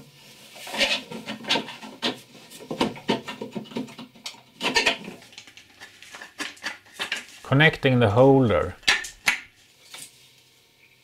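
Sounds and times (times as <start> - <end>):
wood and screw knocks and scrapes: 0.6 - 7.4.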